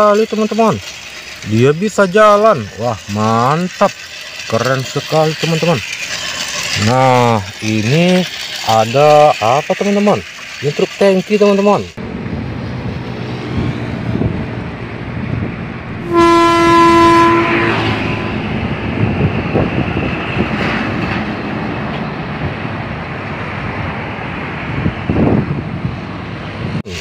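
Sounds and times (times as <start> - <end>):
truck engine and tyre noise: 0.0 - 27.0
air horn blast: 15.9 - 18.6.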